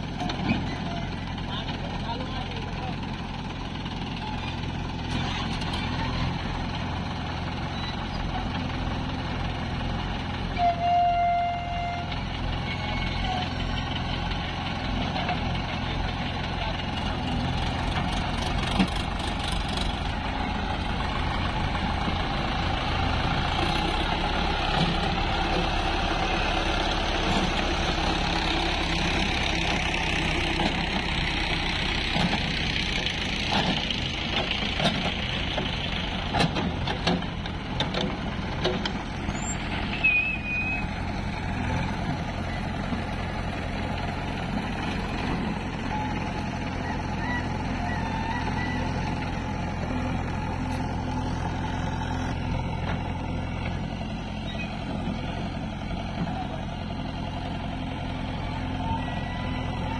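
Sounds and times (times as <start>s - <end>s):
diesel engines running: 0.0s - 59.9s.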